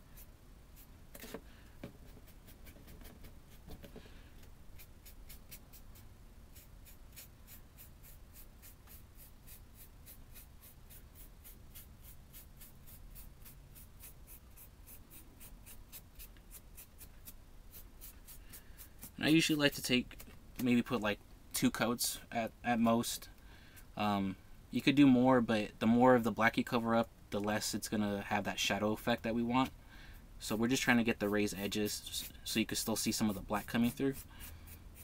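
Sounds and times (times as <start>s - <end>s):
paintbrush scratchy strokes: 4.8s - 19.7s.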